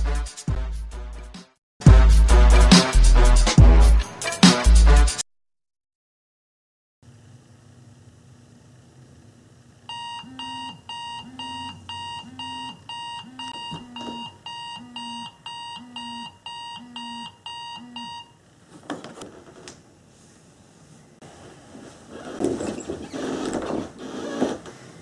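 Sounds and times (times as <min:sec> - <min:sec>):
smartphone alarm beeping: 0:09.9 - 0:18.3
knocks and rustles: 0:18.7 - 0:19.9, 0:21.7 - 0:24.8.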